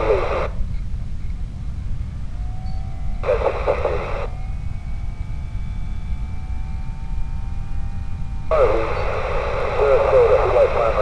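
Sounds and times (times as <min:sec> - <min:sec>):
garbled radio transmission: 0:00.0 - 0:00.6, 0:03.2 - 0:04.4, 0:08.5 - 0:11.0
radio static rumble: 0:00.0 - 0:01.3, 0:03.2 - 0:04.4, 0:08.5 - 0:11.0.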